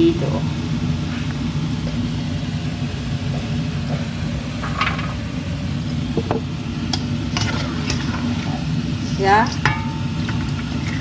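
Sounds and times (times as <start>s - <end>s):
dough frying in hot oil: 0.0s - 11.0s
low rumble and hum: 0.0s - 11.0s
metal spoon clinking on wok: 9.6s - 10.5s.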